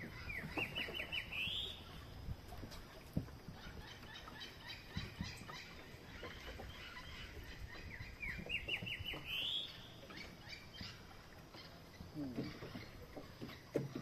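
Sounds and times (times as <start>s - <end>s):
bird calling: 0.0s - 14.0s.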